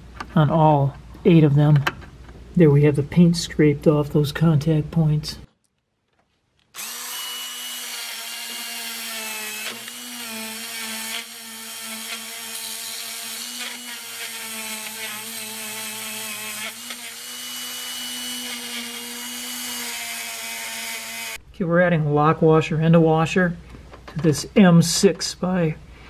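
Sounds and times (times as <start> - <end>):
rotary tool motor whine: 6.8 - 21.4.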